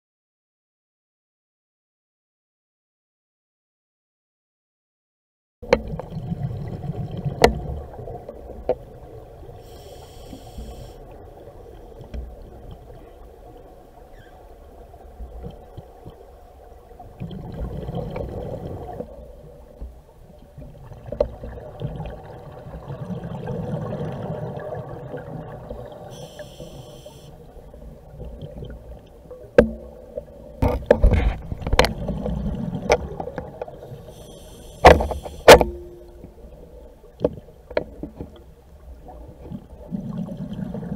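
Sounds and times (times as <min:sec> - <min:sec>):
short hisses: 0:26.1 - 0:27.4, 0:34.0 - 0:35.6
sharp clicks and knocks: 0:30.6 - 0:32.0.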